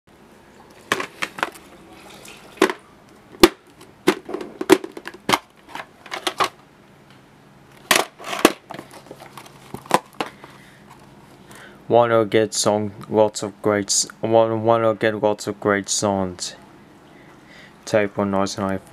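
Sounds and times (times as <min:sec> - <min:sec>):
plastic cases clicking: 0:03.4 - 0:06.6.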